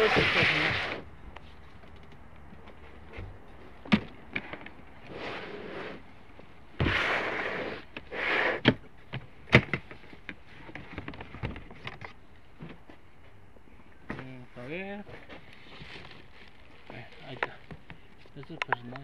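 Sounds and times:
sharp clicks and knocks: 17.3 - 19.0.

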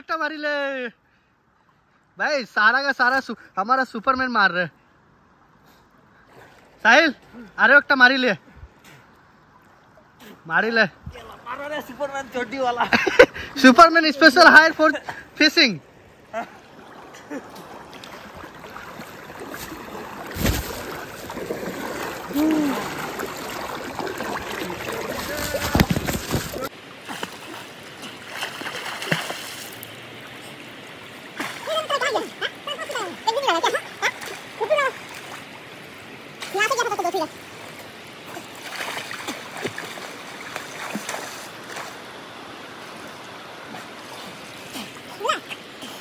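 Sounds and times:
water splashing from wading: 15.9 - 46.0.

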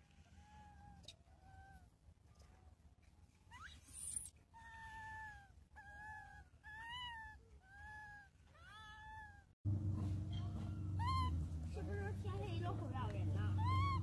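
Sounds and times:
steady low hum: 9.6 - 14.0
infant monkey coo calls: 10.5 - 11.5, 13.4 - 14.0.

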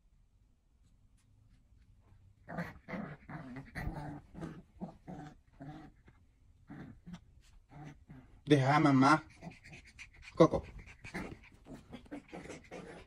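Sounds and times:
dog growling: 2.4 - 13.0.

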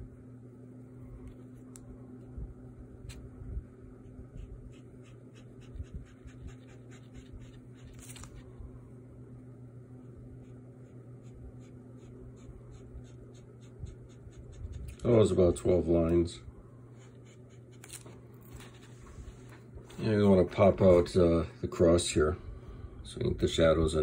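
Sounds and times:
low steady hum: 0.0 - 24.0
marker scratching on paper: 4.0 - 8.4, 10.4 - 15.1.

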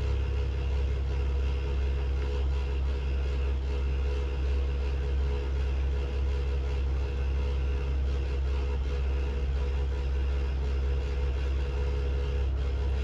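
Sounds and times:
faint drone: 0.0 - 5.8
low mechanical hum: 0.0 - 13.0.

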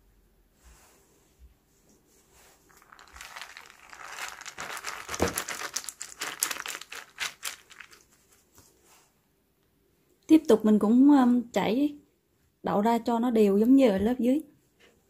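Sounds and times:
beans pattering onto towel: 2.5 - 8.8.

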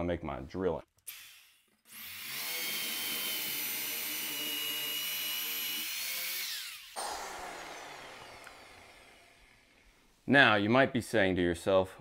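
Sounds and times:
drill boring into wood: 1.1 - 9.7.

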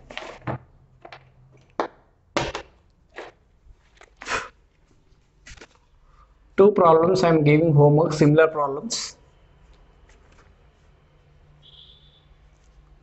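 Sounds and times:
paper rustling: 0.0 - 1.2, 3.2 - 6.0.

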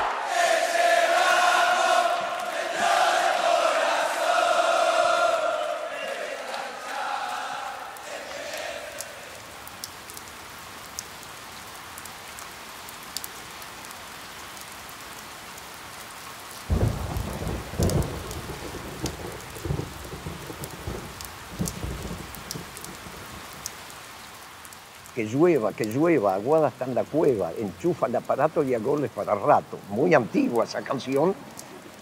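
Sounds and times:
sharp ticks of raindrops: 0.0 - 32.0
steady rain: 0.0 - 32.0
rolling thunder: 16.7 - 23.6.

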